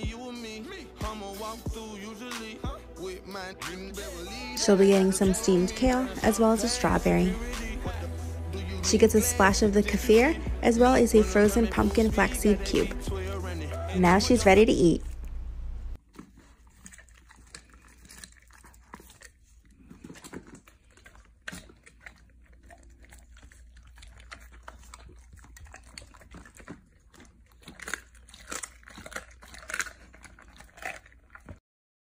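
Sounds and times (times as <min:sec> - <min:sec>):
dog chewing raw meat: 0:16.0 - 0:31.6.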